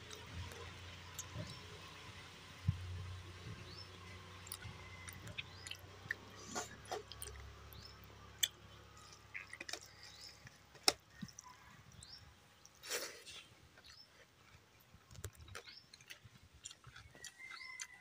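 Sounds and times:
noisy mouthful chewing: 0.0s - 2.1s, 3.5s - 18.0s.

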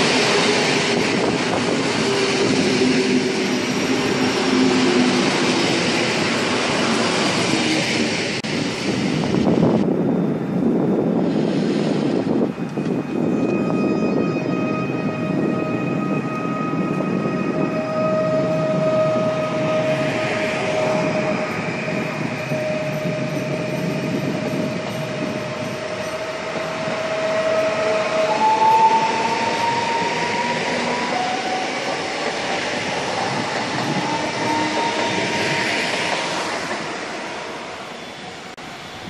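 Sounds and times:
electric train passing on rails: 0.0s - 39.0s
train motor whine: 10.6s - 38.5s.

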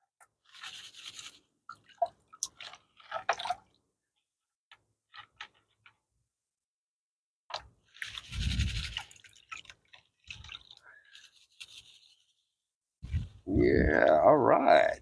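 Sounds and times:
gravel rattling in a gold pan: 0.4s - 1.4s, 7.9s - 12.3s.

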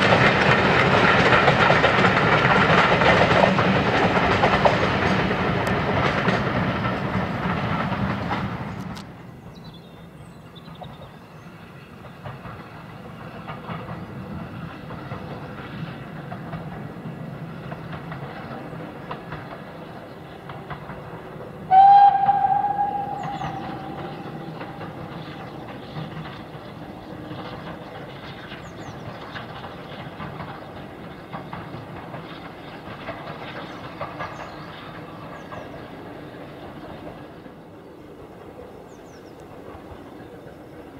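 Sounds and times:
distant steam train running: 0.0s - 40.9s
train coaches rolling past: 0.0s - 40.9s
steam locomotive whistle: 21.7s - 25.6s.

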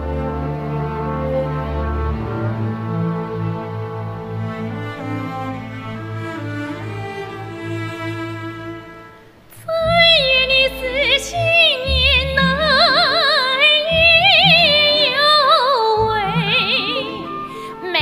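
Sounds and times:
orchestral string chord: 0.0s - 18.0s
soprano singing with orchestra: 9.5s - 18.0s.

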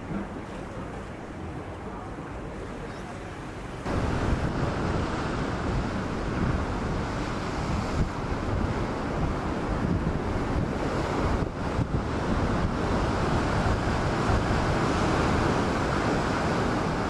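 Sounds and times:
steady rushing outdoor noise: 0.0s - 17.0s.

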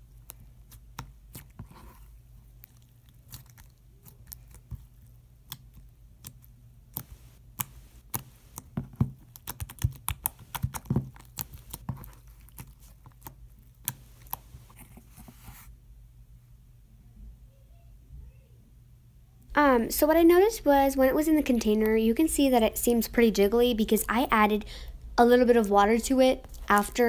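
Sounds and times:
faint low hum: 0.0s - 27.0s
slime squishing and popping: 2.5s - 14.4s.

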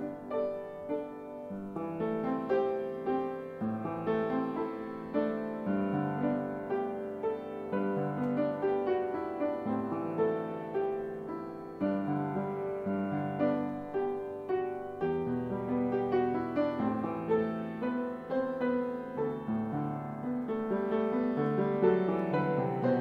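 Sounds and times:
piano music: 0.0s - 23.0s.

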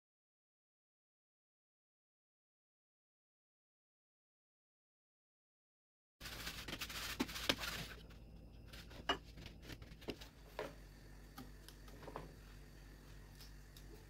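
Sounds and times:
grains rustling through sieve: 6.2s - 8.1s.

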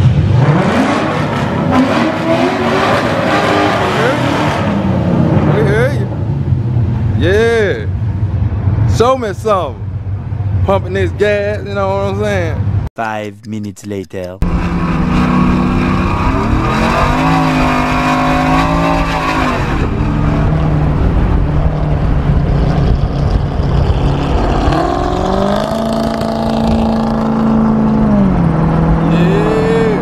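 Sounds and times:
car engine accelerating hard: 0.0s - 7.2s, 14.4s - 30.0s
road noise: 0.0s - 30.0s.

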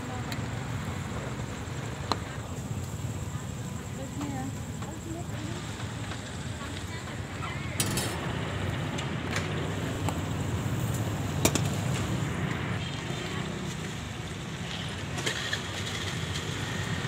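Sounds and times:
background chatter: 0.0s - 10.9s
charcoal fire crackling: 0.0s - 17.0s
low rumble of street traffic: 0.0s - 17.0s
fish sizzling on a grill: 9.6s - 17.0s.

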